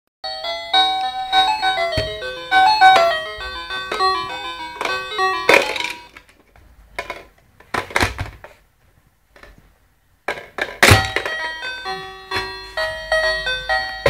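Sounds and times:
toy telephone electronic tune: 0.3s - 6.2s.

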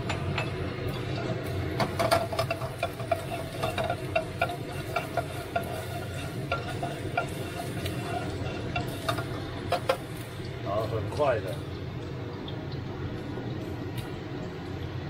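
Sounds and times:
utensil scraping wok: 0.0s - 10.4s.

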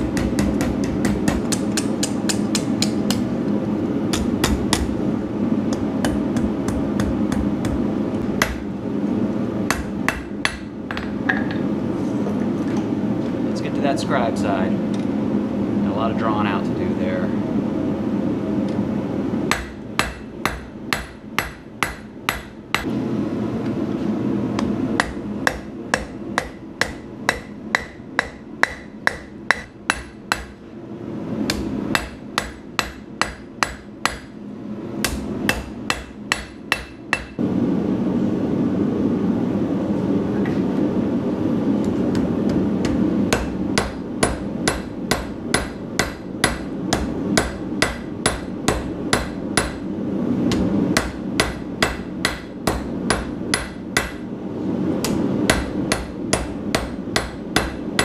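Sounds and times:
hammer striking steel on anvil: 0.0s - 3.3s, 4.1s - 5.0s, 8.4s - 8.7s, 9.7s - 11.6s, 19.5s - 22.9s, 25.0s - 30.6s, 31.5s - 34.4s, 35.0s - 37.4s, 42.8s - 49.8s, 50.5s - 54.2s, 55.0s - 58.0s.

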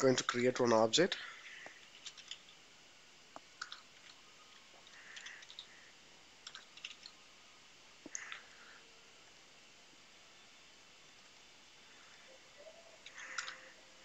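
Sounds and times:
computer keyboard keystrokes: 2.0s - 2.5s.

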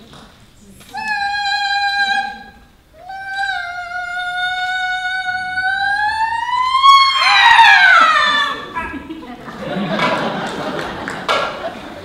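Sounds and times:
opera voice singing long note: 0.9s - 8.7s.

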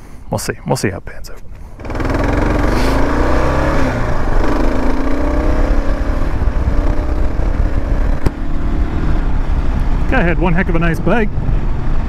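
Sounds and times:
wind rush: 1.7s - 12.0s
motorcycle engine accelerating: 1.8s - 10.5s.

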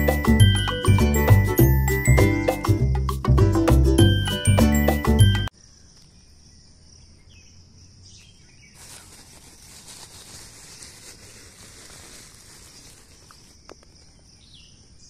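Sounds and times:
faint bird chirps: 5.5s - 15.0s.

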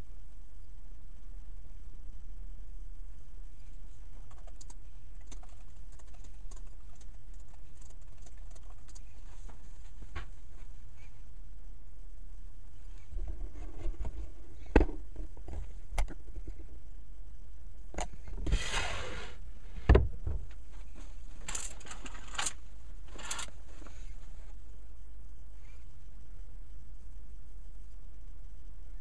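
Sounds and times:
low steady hum: 0.0s - 29.0s
rustling scrapes: 18.4s - 19.4s, 20.6s - 24.6s.

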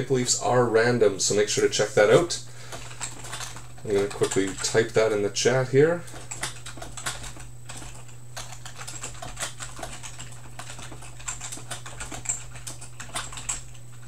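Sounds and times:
typing on computer keyboard: 2.7s - 5.1s, 6.0s - 14.0s.

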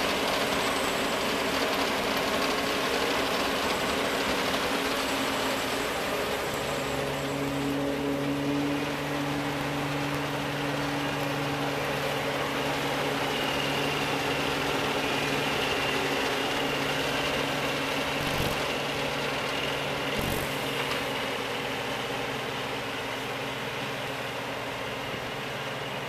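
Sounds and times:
combine harvester engine drone: 0.0s - 26.0s
faint high whine: 18.2s - 19.0s, 20.2s - 21.0s.

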